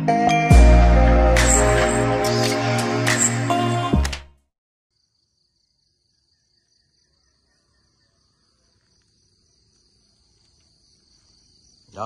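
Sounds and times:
insects chirping: 0:04.9 - 0:12.0.

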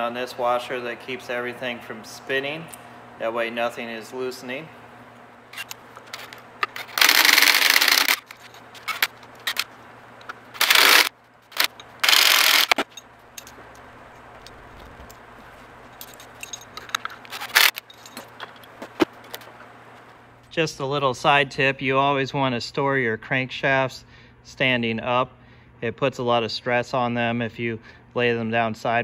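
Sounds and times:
power ratchet running: 0:05.6 - 0:09.7, 0:10.6 - 0:12.9, 0:16.4 - 0:17.8
metallic clinks of parts handled: 0:12.7 - 0:19.5.

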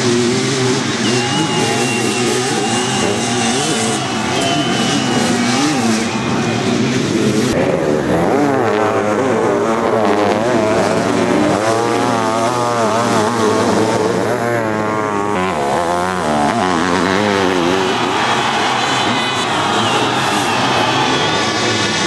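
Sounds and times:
motorcycle engines revving: 0:00.0 - 0:22.0.

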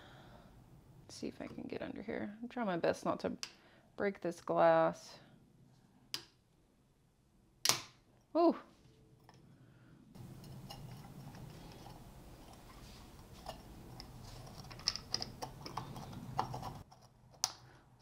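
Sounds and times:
low steady hum: 0:08.2 - 0:18.0
small tool clicking and scraping metal: 0:10.2 - 0:17.7.

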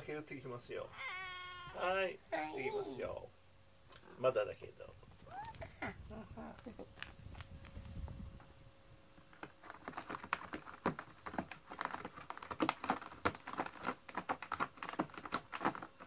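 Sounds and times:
cat claws scratching: 0:09.4 - 0:16.0.

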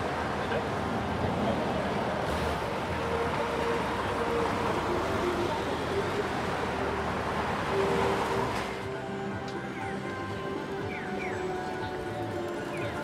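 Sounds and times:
road traffic noise: 0:00.0 - 0:13.0.

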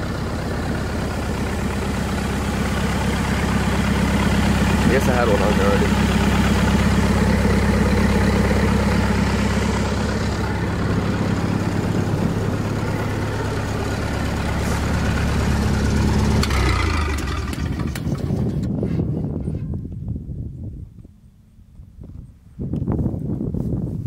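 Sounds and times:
welding rig engine idling: 0:00.0 - 0:18.6.

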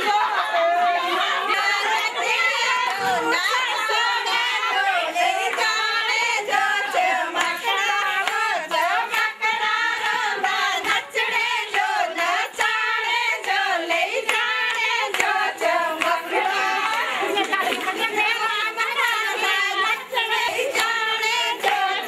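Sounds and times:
women singing folk song: 0:00.0 - 0:22.0
hand clapping: 0:07.3 - 0:22.0.

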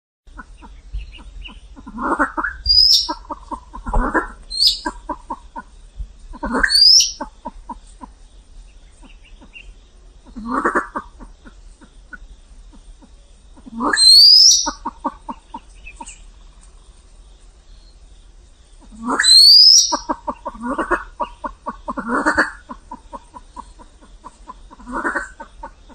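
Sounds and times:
pheasant clucking: 0:00.3 - 0:16.9, 0:18.8 - 0:25.9
harsh pheasant calls: 0:00.3 - 0:25.9
high squeaky bird notes: 0:06.6 - 0:07.2.

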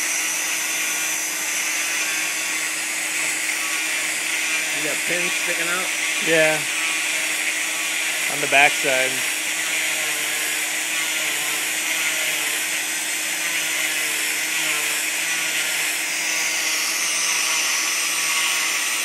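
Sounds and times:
cast saw whirring: 0:00.0 - 0:19.0.

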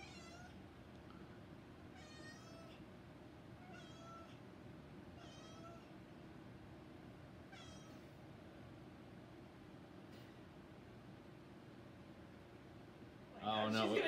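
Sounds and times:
cat meowing: 0:00.0 - 0:00.6, 0:01.9 - 0:02.8, 0:03.6 - 0:04.4, 0:05.2 - 0:06.0, 0:07.5 - 0:08.1
low room hum: 0:00.0 - 0:14.0.

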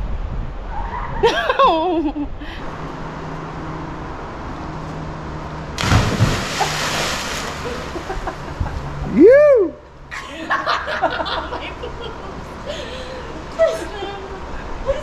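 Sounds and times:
loud splash into water: 0:05.8 - 0:08.1.

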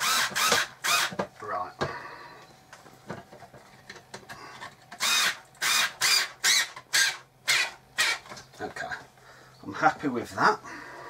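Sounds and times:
cordless screwdriver driving screw: 0:05.0 - 0:08.2.

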